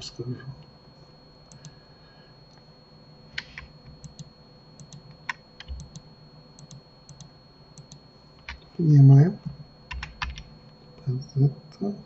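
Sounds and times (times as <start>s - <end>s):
faint electrical whine: 0.0s - 12.0s
keyboard and mouse clicks: 3.4s - 6.0s, 6.6s - 8.6s, 9.9s - 10.5s.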